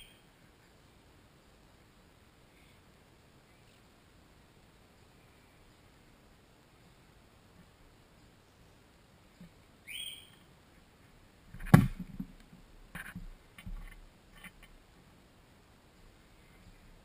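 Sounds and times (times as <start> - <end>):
soft bumps: 11.5 - 14.7.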